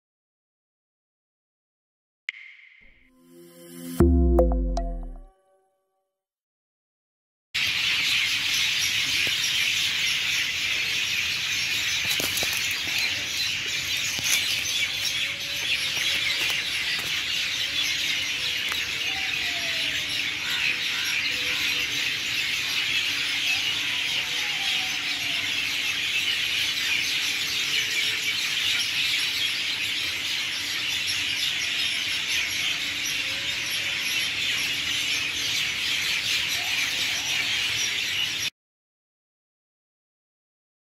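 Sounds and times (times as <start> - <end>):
chorus of birds chirping: 7.6 - 38.5.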